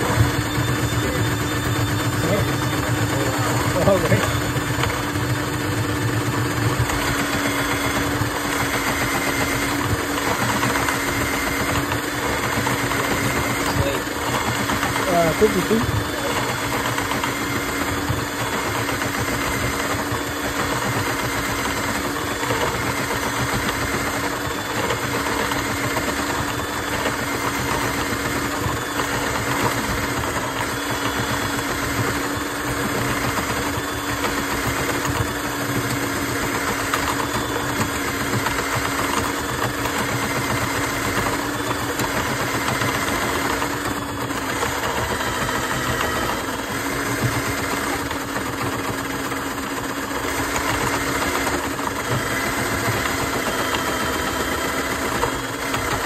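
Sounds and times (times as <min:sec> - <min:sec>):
drain cleaning machine humming: 0:00.0 - 0:56.0.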